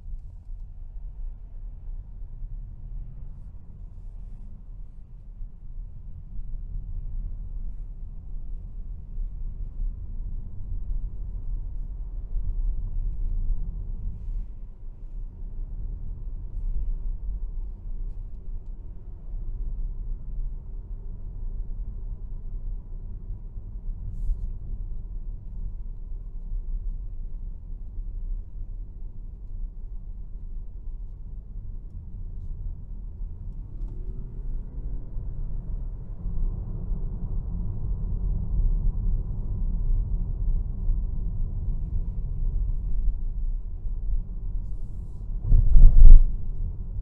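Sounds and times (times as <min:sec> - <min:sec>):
faint steady whine: 0:00.0 - 0:47.0
tyre and road noise rumble: 0:32.4 - 0:39.1, 0:40.0 - 0:47.0.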